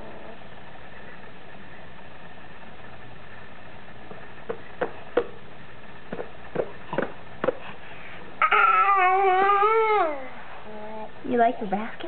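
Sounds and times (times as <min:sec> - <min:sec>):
background hum: 0:00.0 - 0:12.0
hands patting basketball: 0:04.1 - 0:05.4, 0:06.1 - 0:07.6
toddler vocalizing: 0:08.4 - 0:11.1.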